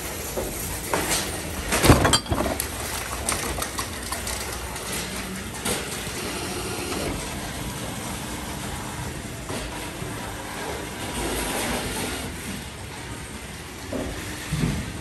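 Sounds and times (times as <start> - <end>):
vending machine mechanical hum: 0.0 - 15.0
bottles and cans clattering: 0.8 - 5.2.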